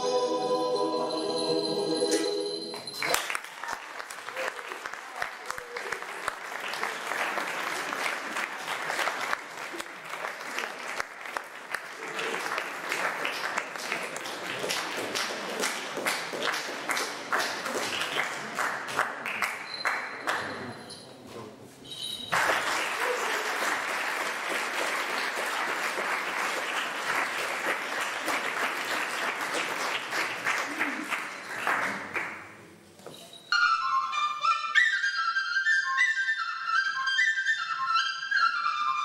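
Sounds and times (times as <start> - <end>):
audience applauding: 2.7 - 20.6, 22.3 - 32.5.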